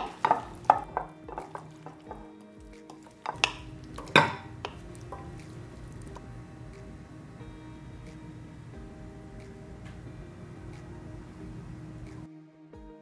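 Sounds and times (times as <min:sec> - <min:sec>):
spoon knocking against glass: 0:00.0 - 0:02.3, 0:02.9 - 0:05.6
spoon tossing salad in glass bowl: 0:00.0 - 0:06.2
soft background music: 0:00.0 - 0:13.0.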